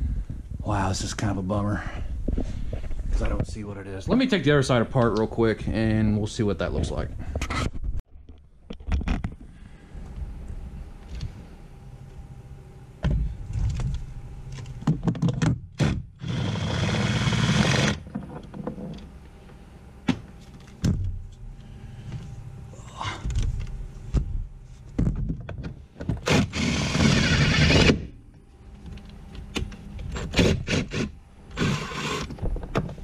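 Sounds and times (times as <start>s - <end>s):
cordless impact driver: 15.8s - 18.0s, 26.2s - 28.1s, 30.2s - 32.3s.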